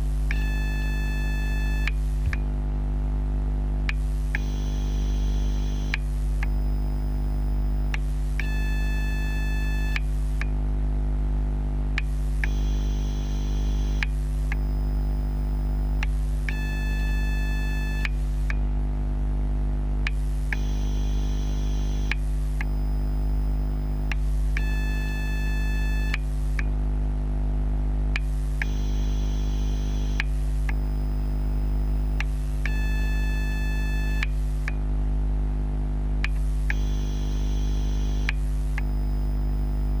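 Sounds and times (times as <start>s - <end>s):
charger hum and buzz: 0.0s - 40.0s
high electronic whine: 3.9s - 10.4s, 12.0s - 18.5s, 20.2s - 26.2s, 28.6s - 34.5s, 36.3s - 40.0s.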